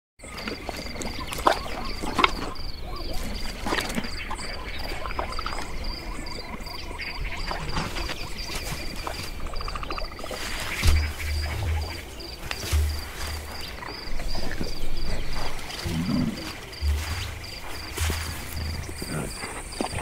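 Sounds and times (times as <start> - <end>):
insects chirping: 0.2 - 20.0.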